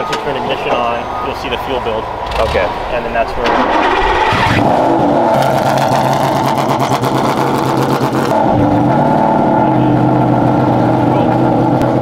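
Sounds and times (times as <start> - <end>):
race car engine idling: 4.8 - 12.0.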